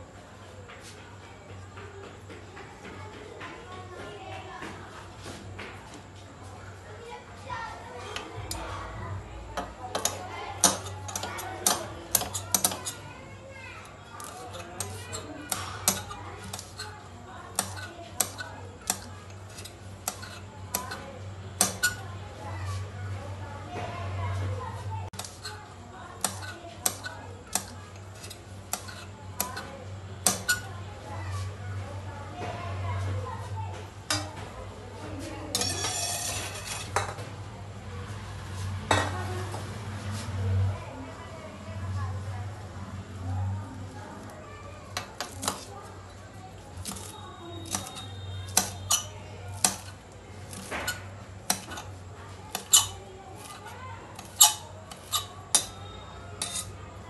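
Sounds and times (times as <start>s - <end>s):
knife chopping on stone countertop: 17.6s - 21.0s, 21.6s - 22.0s, 26.2s - 30.7s, 46.8s - 51.9s, 52.5s - 56.7s
knife chopping on stone: 46.8s - 51.9s.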